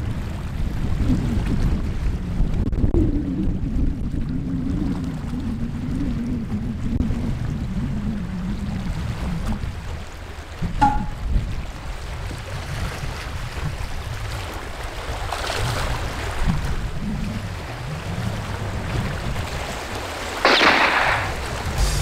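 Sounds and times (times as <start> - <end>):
choppy sea against rocks: 0.0 - 22.0
wind rumbling on microphone: 0.0 - 22.0
short loud rush of noise: 20.4 - 22.0.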